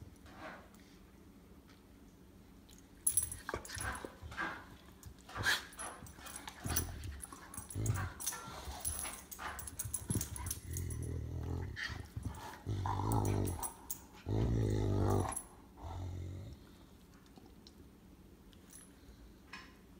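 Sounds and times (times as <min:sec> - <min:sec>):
dog growling low: 0:10.6 - 0:16.8.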